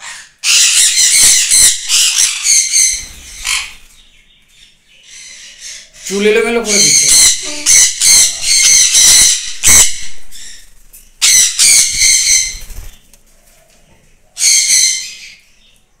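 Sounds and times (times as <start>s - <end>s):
parrots calling high-pitched: 0.0s - 12.8s, 14.4s - 15.5s
wings fluttering: 2.8s - 4.0s, 8.4s - 13.9s.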